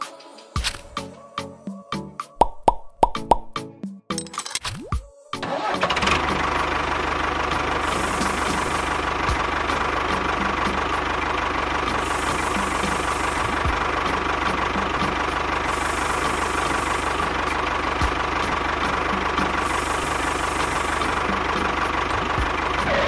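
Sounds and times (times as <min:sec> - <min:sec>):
small engine running with whine: 0:05.4 - 0:23.0.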